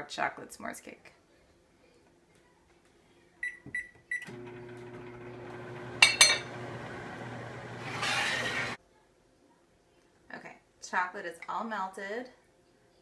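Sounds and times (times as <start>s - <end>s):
microwave running hum: 4.2s - 8.8s.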